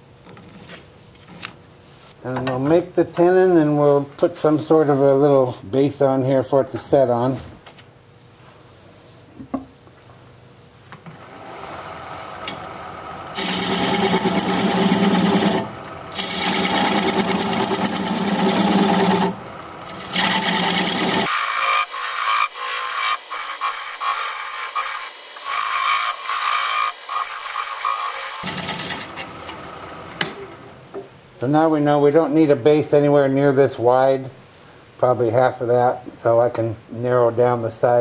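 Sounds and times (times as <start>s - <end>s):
turning tool cutting wood: 11.2s - 30.7s
wood lathe running: 11.2s - 30.7s.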